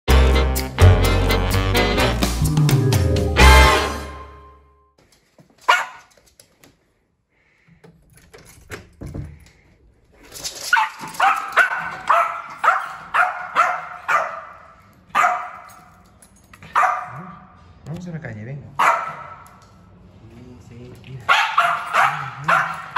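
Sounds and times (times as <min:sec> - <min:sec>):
small dog barking: 0:05.7 - 0:06.1, 0:10.8 - 0:15.7, 0:16.7 - 0:17.3, 0:18.8 - 0:19.4, 0:21.3 - 0:22.9.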